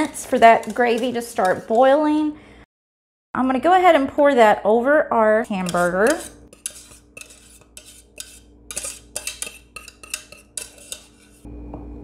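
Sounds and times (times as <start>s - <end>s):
metal saucepan clinking and scraping: 0.0s - 2.0s, 5.5s - 11.5s.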